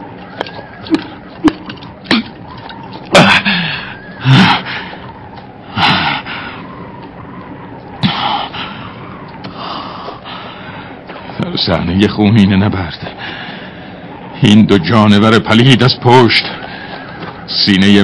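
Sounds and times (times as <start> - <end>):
man gasping and groaning: 3.2 - 4.8.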